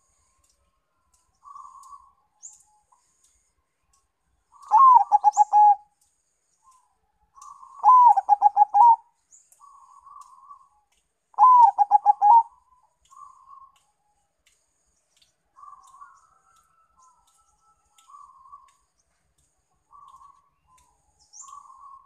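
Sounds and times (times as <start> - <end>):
dove cooing: 4.6 - 5.8, 7.6 - 9.0, 11.4 - 12.6.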